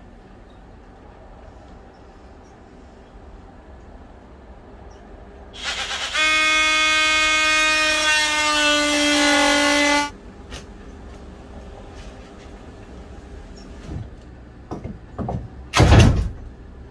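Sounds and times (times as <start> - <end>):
cordless drill whining: 5.6 - 9.1.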